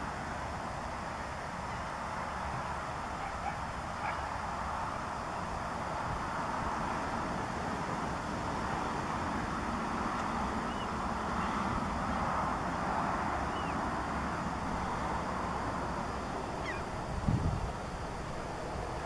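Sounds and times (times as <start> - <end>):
broad even rush with low rumble: 0.0 - 19.0
faint high bird chirps: 10.7 - 11.6, 13.5 - 13.8, 16.6 - 16.9.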